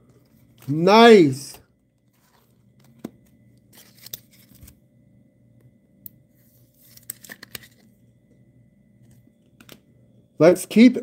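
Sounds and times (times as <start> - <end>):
cards and plastic sleeve rustling: 0.0 - 4.8, 6.4 - 8.0.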